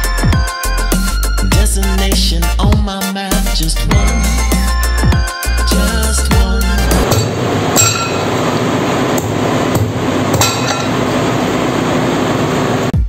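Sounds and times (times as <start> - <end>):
steady workshop noise: 6.6 - 13.0
metal tools striking steel: 7.1 - 8.4, 9.8 - 11.1.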